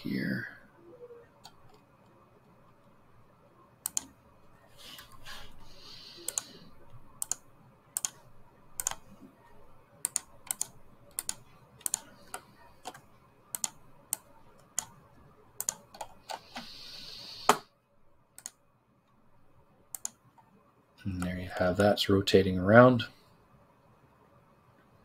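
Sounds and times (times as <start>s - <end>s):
soft hiss: 0.0s - 25.0s
mouse and keyboard clicks: 3.8s - 4.1s, 6.2s - 7.4s, 8.0s - 8.2s, 8.8s - 9.1s, 10.0s - 15.0s, 15.6s - 16.7s, 18.4s - 18.6s, 19.9s - 20.5s.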